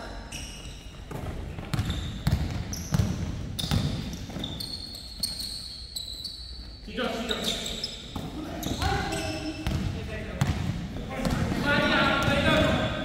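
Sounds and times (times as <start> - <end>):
basketball bouncing on court: 1.0 - 5.3, 8.1 - 13.0
short high squeaks: 3.6 - 9.6.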